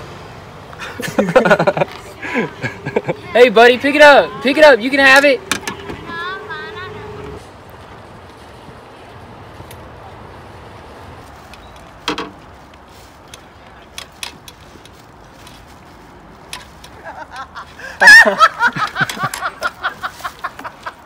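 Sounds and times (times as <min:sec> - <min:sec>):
faint background noise: 0:00.0 - 0:21.0
woman laughing loudly: 0:00.8 - 0:03.3, 0:17.0 - 0:21.0.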